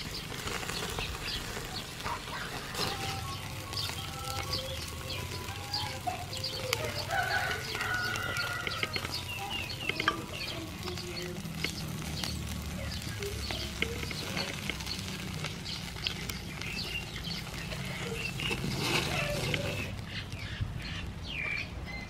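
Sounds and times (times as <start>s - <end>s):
chickens clucking: 0.0s - 21.8s
food sizzling on charcoal grill: 0.0s - 22.0s.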